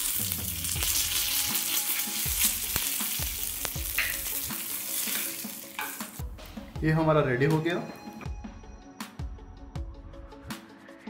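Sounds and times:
seeds sizzling in hot oil: 0:00.0 - 0:06.2
spoon knocking and scraping pan: 0:03.2 - 0:06.2.

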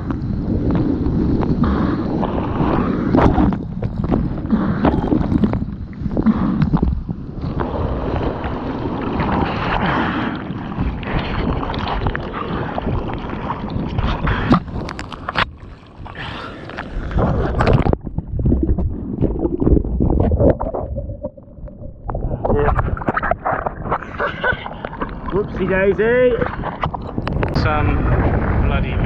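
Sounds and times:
surf rushing and splashing: 0:07.4 - 0:17.9.

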